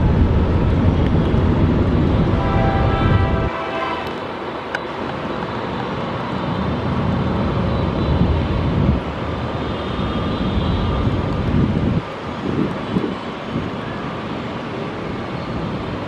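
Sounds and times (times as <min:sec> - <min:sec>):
jet engine rumble with whine: 0:00.0 - 0:03.6.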